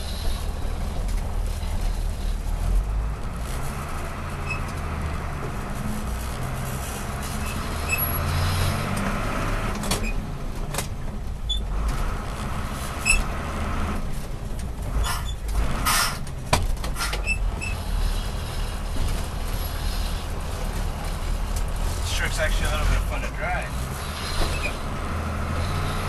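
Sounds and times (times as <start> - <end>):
truck engine and road noise: 0.0 - 26.0.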